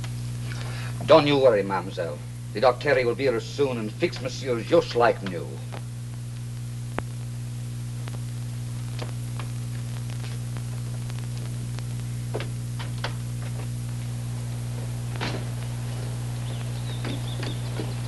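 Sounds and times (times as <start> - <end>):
film soundtrack hum and hiss: 0.0 - 18.0
faint clicks and crackles: 5.2 - 14.2.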